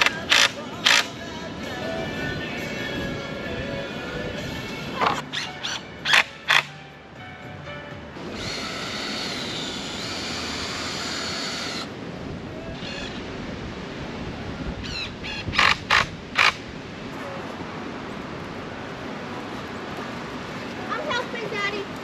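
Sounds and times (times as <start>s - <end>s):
cordless drill motor whining: 8.3s - 11.9s
drill trigger bursts: 8.3s - 11.9s.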